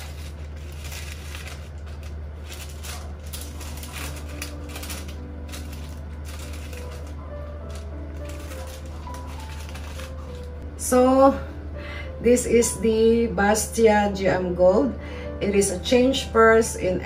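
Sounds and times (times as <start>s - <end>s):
paper wrapping rustling: 0.0s - 10.6s.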